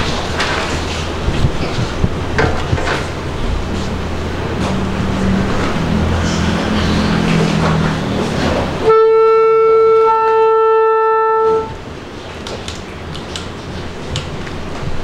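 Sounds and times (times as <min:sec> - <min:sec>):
clarinet note held: 0:08.8 - 0:11.8.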